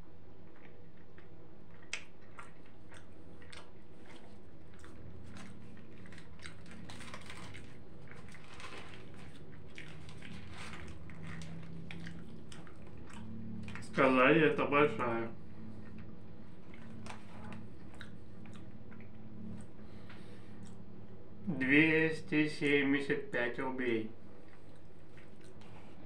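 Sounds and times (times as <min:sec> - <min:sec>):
close chewing with mouth smacks: 0:00.4 - 0:14.0, 0:15.5 - 0:20.9, 0:24.4 - 0:26.0.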